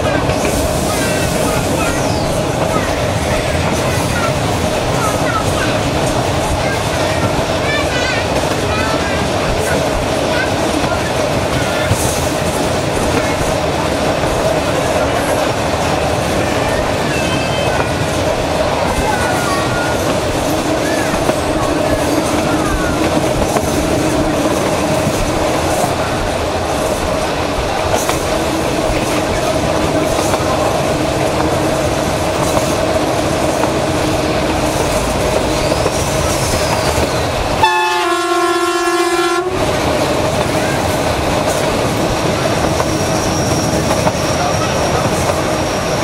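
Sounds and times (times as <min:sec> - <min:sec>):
train wheels rumbling and clattering: 0:00.0 - 0:46.0
locomotive horn: 0:37.6 - 0:39.7.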